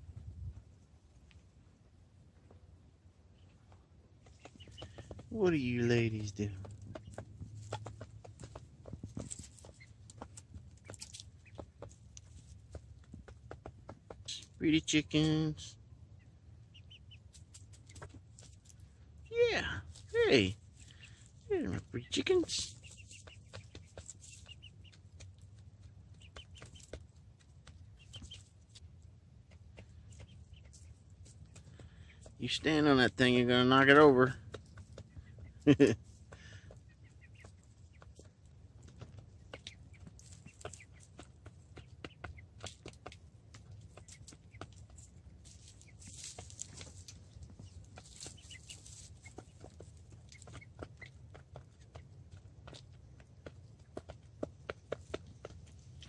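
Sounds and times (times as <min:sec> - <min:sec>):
hens pecking in straw: 0:00.0 - 0:56.0
hens clucking softly: 0:03.3 - 0:14.6, 0:16.0 - 0:19.2, 0:20.7 - 0:32.8, 0:33.5 - 0:56.0
rustles in straw: 0:45.4 - 0:47.2, 0:48.0 - 0:49.4.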